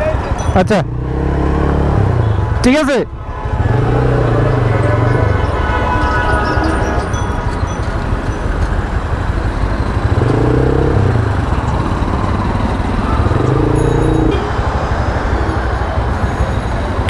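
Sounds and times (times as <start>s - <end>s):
motorcycle engine rumble: 6.9s - 17.0s.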